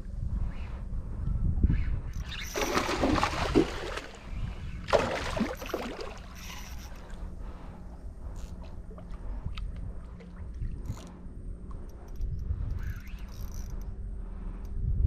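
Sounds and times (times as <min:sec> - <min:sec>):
steady low rumble: 0:00.0 - 0:15.0
water splashing against boat: 0:02.4 - 0:07.3.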